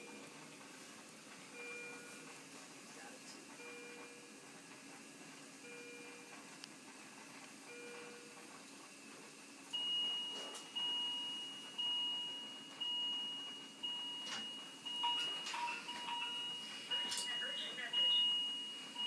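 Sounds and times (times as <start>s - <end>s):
medical alarm beeping: 0.0s - 0.4s, 1.5s - 2.3s, 3.6s - 4.4s, 5.6s - 6.4s, 7.7s - 8.4s, 9.7s - 19.0s.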